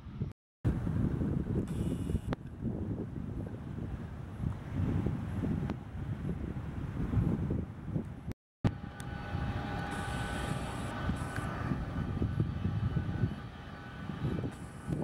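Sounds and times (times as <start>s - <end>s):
wind rumble on microphone: 0.0s - 15.0s
jet engines whining: 8.7s - 15.0s.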